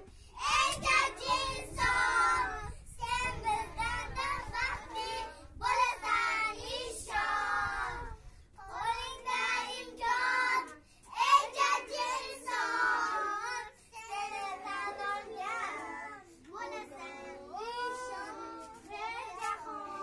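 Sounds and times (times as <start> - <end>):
young children singing: 0.0 - 20.0.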